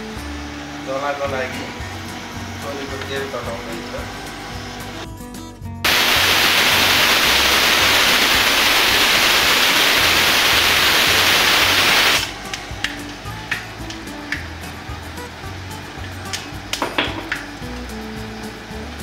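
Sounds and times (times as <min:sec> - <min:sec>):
seeds sizzling in hot oil: 0:05.9 - 0:12.5
small pops of frying: 0:12.5 - 0:14.6, 0:16.0 - 0:17.9.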